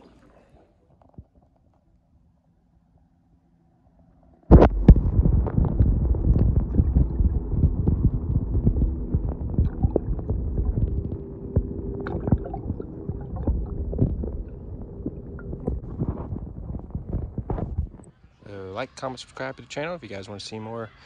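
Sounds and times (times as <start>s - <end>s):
faint steady hum: 0.0s - 21.0s
underwater rumble of moving water: 4.5s - 18.1s.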